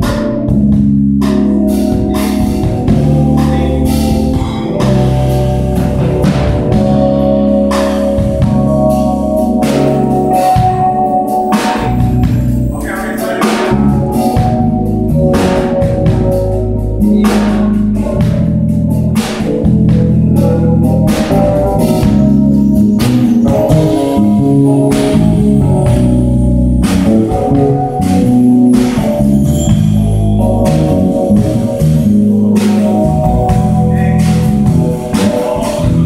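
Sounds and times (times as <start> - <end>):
drum kit with cymbals: 0.0 - 36.0
electric bass: 0.0 - 36.0
organ chords: 0.0 - 36.0.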